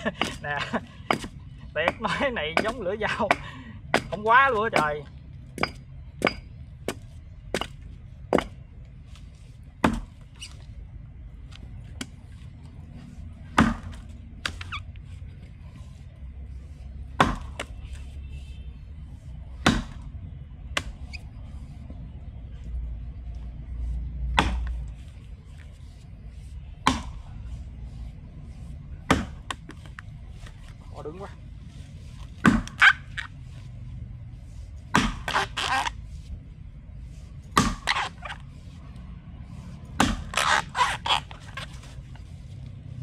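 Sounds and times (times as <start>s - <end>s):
axe chopping wood: 0.0s - 8.7s, 9.8s - 10.2s, 13.5s - 14.7s, 17.1s - 17.8s, 19.6s - 20.1s, 20.7s - 21.0s, 24.2s - 24.9s, 26.8s - 27.3s, 29.0s - 30.0s, 32.3s - 33.2s, 34.8s - 35.9s, 37.4s - 38.3s, 39.8s - 41.8s.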